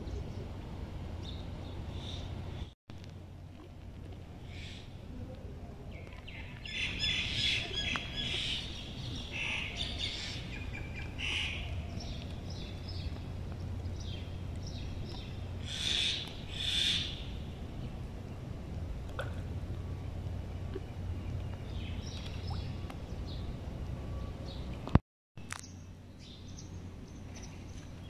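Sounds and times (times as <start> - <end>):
steady low hum: 0.0 - 28.0
birds chirping: 5.9 - 18.6, 19.9 - 24.8.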